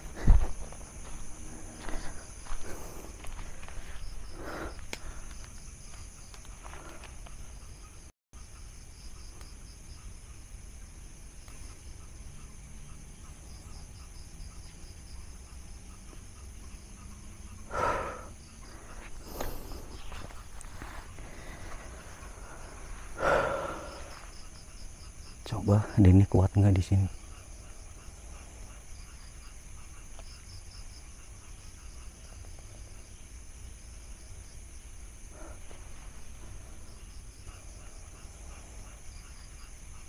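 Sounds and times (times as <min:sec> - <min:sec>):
insects shrilling: 0:16.4 - 0:33.4.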